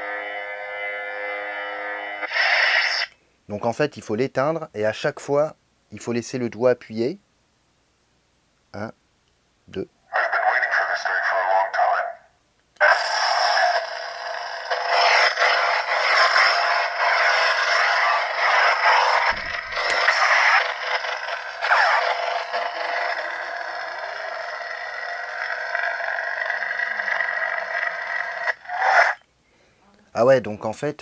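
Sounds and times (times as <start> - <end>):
lightsaber hum with swings: 13.5 - 29.2.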